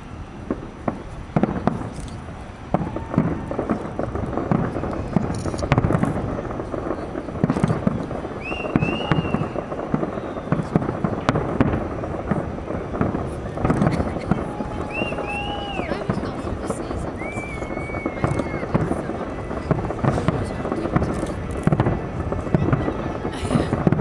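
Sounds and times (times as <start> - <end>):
firework crackling: 0.0 - 24.0
firework shells bursting: 0.0 - 24.0
rising whistle: 8.4 - 10.8, 14.6 - 16.1, 17.1 - 18.7.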